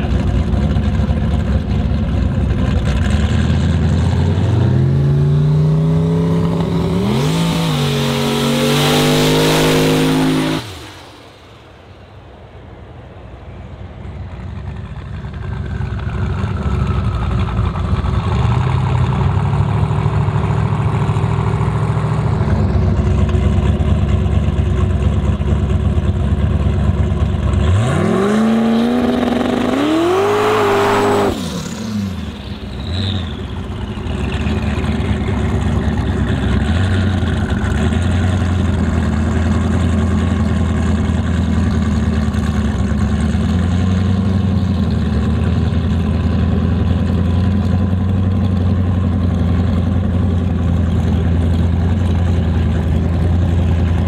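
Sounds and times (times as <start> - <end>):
race car engine accelerating: 0.0 - 11.8, 14.4 - 54.0
distant engine noise: 0.0 - 54.0
engine revving sharply: 2.9 - 12.0, 27.6 - 38.5.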